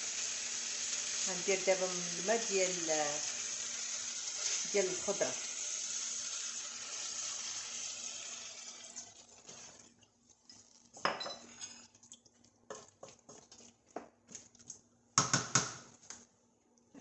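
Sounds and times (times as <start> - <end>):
broth sizzling in a hot pan: 0.0 - 10.0
wooden spoon knocking against pan: 15.2 - 15.8.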